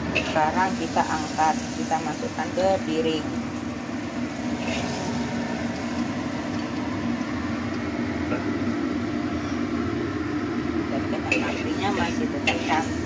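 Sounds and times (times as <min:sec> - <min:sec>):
low machine hum: 0:00.0 - 0:13.0
spatula scraping a wok: 0:04.4 - 0:05.2, 0:11.3 - 0:13.0.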